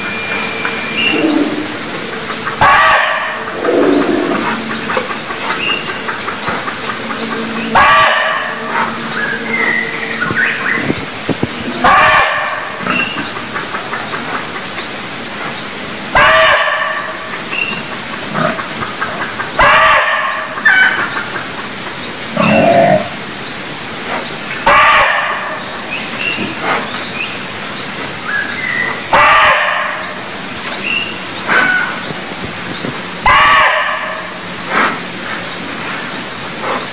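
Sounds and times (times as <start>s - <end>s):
high rising chirp: 0.0s - 2.6s, 3.2s - 5.0s
deer barking: 2.6s - 3.7s, 7.7s - 8.6s, 11.8s - 12.6s, 16.2s - 17.0s, 19.6s - 20.5s, 24.6s - 25.5s, 29.1s - 30.0s, 33.2s - 34.2s.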